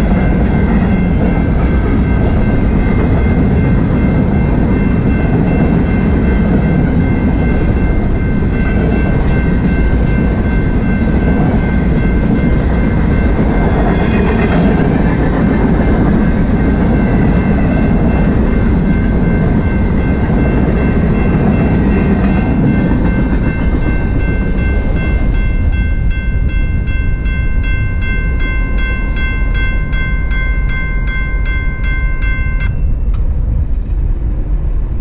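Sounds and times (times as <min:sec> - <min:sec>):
crossing warning bell ringing: 0:00.0 - 0:33.5
freight train cars rumbling: 0:00.0 - 0:35.0.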